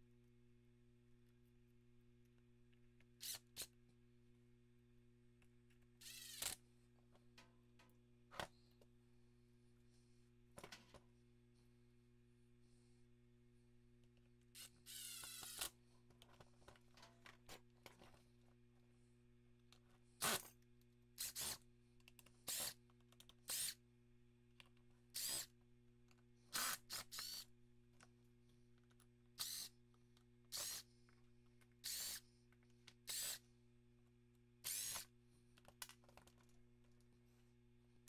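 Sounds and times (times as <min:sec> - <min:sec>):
cordless driver whirring: 0:06.0 - 0:06.6, 0:14.6 - 0:15.7, 0:23.5 - 0:23.8, 0:26.5 - 0:27.4, 0:29.4 - 0:29.7, 0:30.5 - 0:30.8, 0:31.8 - 0:32.2, 0:33.1 - 0:33.4, 0:34.6 - 0:35.1.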